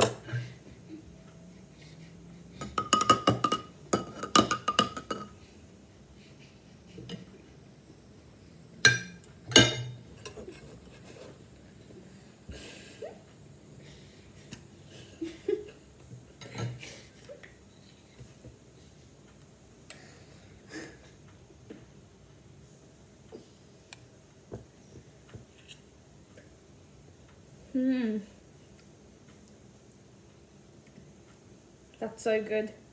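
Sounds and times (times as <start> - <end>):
metal spoon clinking on ceramic: 8.9 - 10.0.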